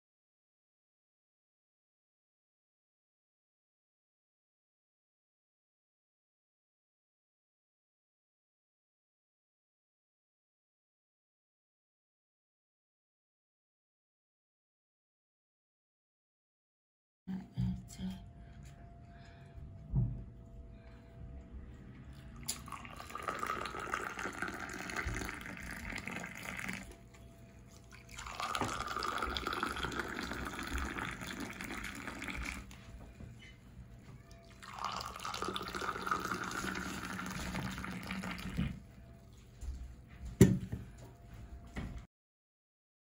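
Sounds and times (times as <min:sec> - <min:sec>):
tea pouring into glass cups: 0:22.2 - 0:32.9, 0:34.4 - 0:38.8.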